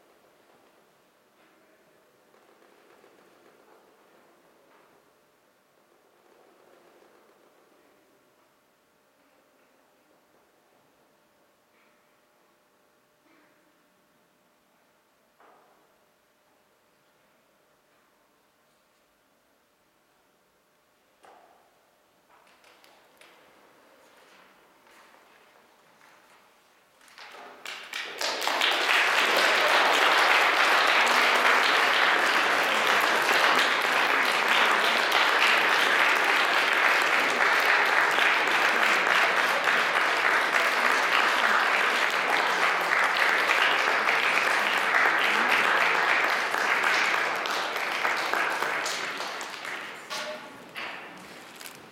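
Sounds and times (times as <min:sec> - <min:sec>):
audience applauding: 0:27.2 - 0:51.9.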